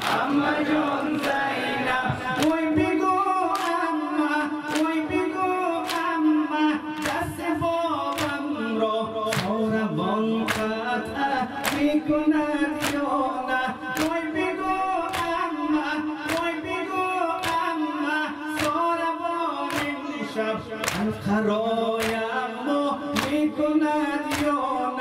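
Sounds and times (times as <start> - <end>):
crowd beating chests: 0.0 - 2.9
men singing a lament: 0.0 - 25.0.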